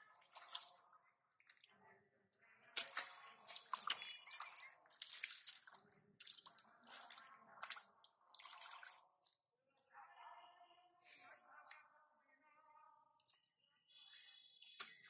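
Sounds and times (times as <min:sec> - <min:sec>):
hands splashing in mud and water: 0:02.7 - 0:09.0.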